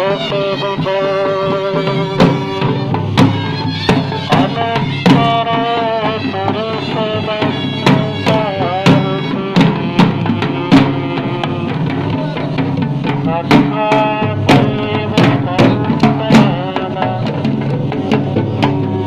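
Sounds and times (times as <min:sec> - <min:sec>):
hand drums beating: 0:00.0 - 0:19.0.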